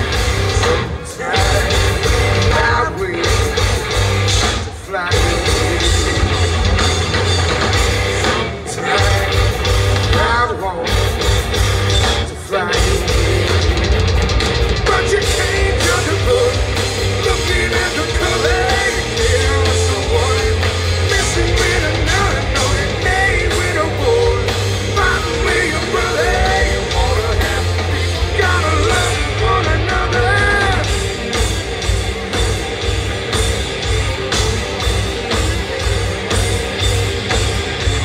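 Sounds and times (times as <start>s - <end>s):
lead vocal singing: 0.0s - 6.9s, 8.2s - 11.1s, 12.0s - 13.7s, 14.8s - 31.4s
bass: 0.0s - 38.0s
distorted electric guitars: 0.0s - 38.0s
drums: 0.0s - 38.0s.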